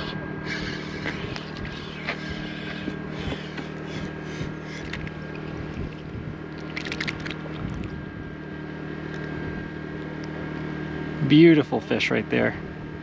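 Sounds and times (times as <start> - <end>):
fish being handled: 0.0 - 8.0
low hum: 0.0 - 13.0.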